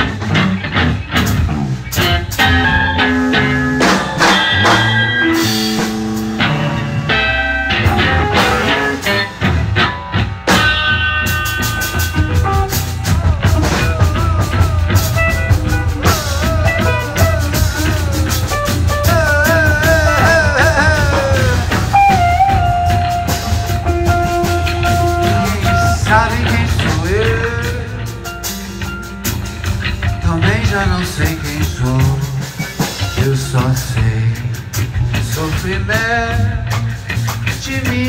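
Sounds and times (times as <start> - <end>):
busy drumming: 0.0 - 38.0
chiming electric guitar notes: 2.0 - 31.0.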